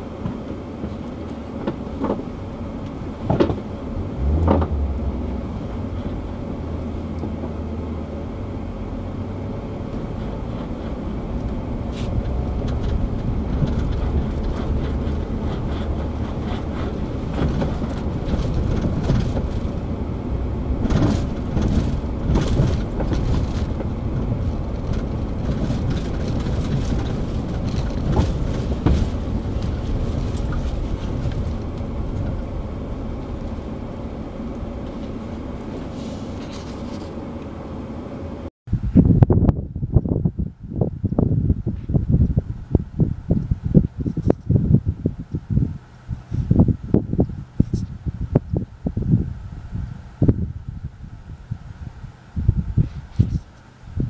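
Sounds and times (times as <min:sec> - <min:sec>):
knocks and rattles over bumps: 0:00.0 - 0:07.9, 0:09.2 - 0:37.2
low rumble of engine and tyres: 0:00.0 - 0:54.0.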